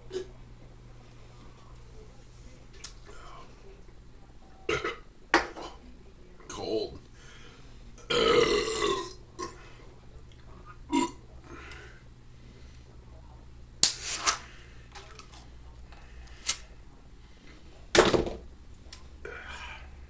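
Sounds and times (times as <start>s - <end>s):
man burping: 8.1s - 9.6s, 10.9s - 11.2s.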